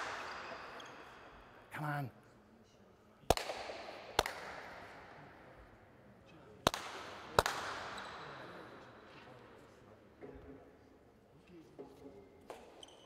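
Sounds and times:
hand claps echoing: 0:00.0 - 0:01.6, 0:03.2 - 0:05.7, 0:06.5 - 0:08.4.

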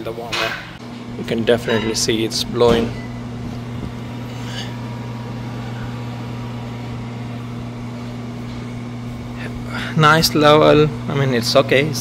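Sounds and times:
blower fan motor hum: 0:00.0 - 0:12.0.

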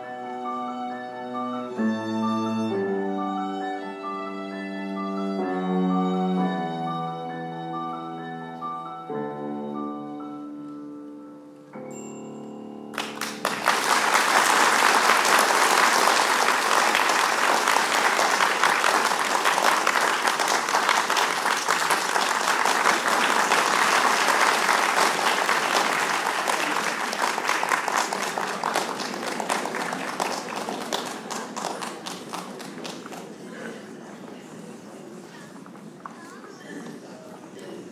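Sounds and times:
violin cello and piano playing: 0:00.0 - 0:10.8
audience applause: 0:13.0 - 0:34.0.

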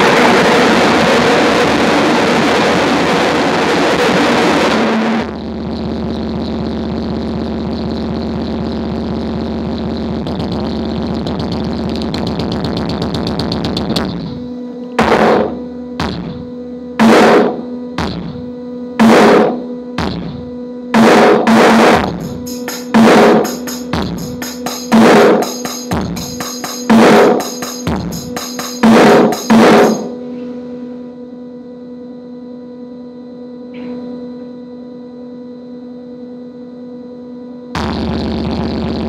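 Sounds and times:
loud noisy wash: 0:00.0 - 0:05.4
distorted drum hits: 0:00.0 - 0:30.2, 0:37.8 - 0:39.0
synthesizer drone: 0:00.0 - 0:39.0.

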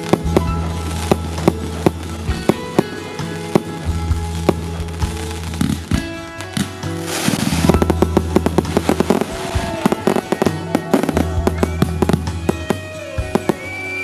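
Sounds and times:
fireworks cracking and banging: 0:00.0 - 0:14.0
music with steady bass line: 0:00.0 - 0:14.0.

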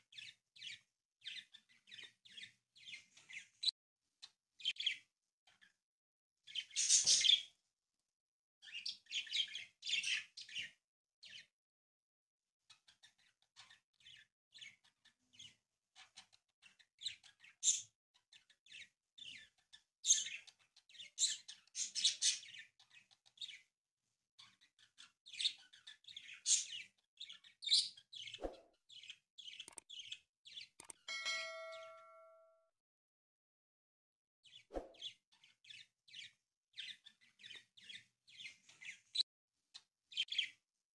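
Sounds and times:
bright notification chime: 0:31.1 - 0:32.6.

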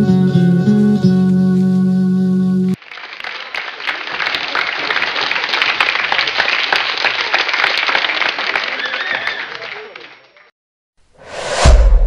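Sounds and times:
guitar chord: 0:00.0 - 0:02.8
crowd applause: 0:02.8 - 0:10.5.

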